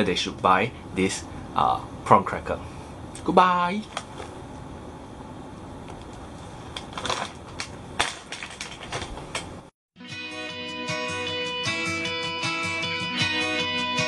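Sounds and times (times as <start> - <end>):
handling clicks and crackles: 5.9 - 9.6
guitar music: 10.0 - 14.0.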